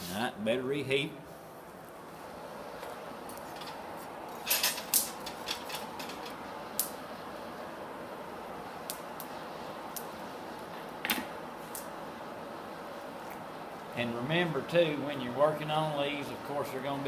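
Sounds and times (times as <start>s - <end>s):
metal tongs clinking: 4.4s - 6.4s.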